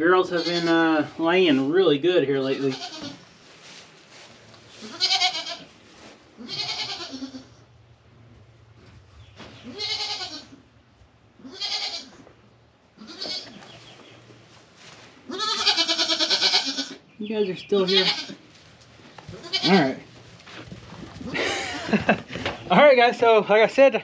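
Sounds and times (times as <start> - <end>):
goats bleating: 0.2 - 1.1, 2.4 - 3.2, 4.8 - 5.7, 6.4 - 7.6, 9.6 - 10.6, 11.4 - 12.2, 13.0 - 13.6, 15.3 - 17.0, 17.7 - 18.4, 19.3 - 20.2, 21.2 - 22.5.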